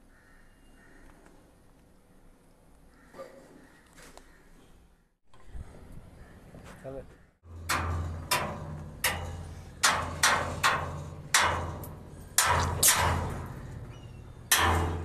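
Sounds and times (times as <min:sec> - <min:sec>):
hammer striking steel frame: 0:07.4 - 0:15.0.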